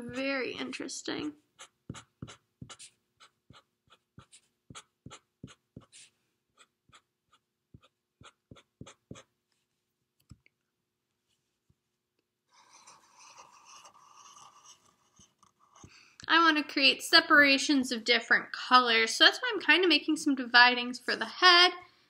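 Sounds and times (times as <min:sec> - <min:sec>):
marker drawing on paper: 0:00.0 - 0:09.8, 0:12.5 - 0:16.0.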